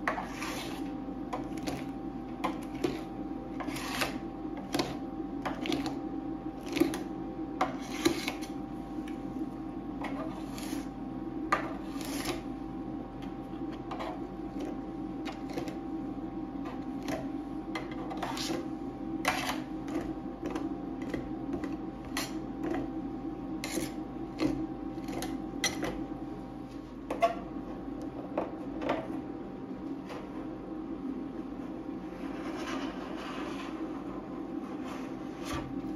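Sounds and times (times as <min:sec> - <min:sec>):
metal spatula scraping steel plate: 0:03.6 - 0:04.2, 0:19.2 - 0:19.7.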